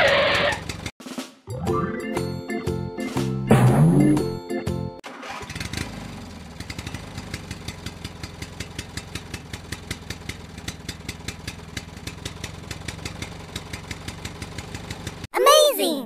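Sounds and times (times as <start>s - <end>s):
small engine chugging: 0.0s - 0.9s, 5.2s - 15.3s.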